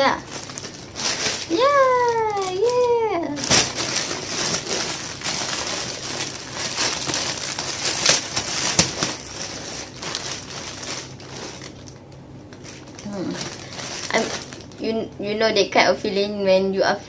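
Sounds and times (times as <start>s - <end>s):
plastic bag crinkling: 0.0s - 15.1s.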